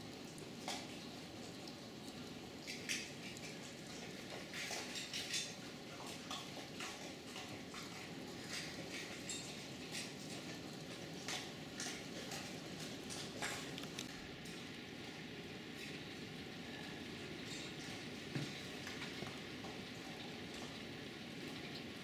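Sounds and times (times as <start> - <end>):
steady rain: 0.0 - 6.8, 7.6 - 22.0
drips tapping on hard surfaces: 17.4 - 20.8.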